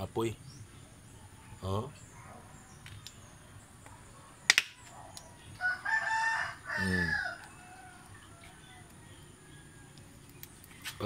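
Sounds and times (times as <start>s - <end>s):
rooster crowing: 5.6s - 10.0s.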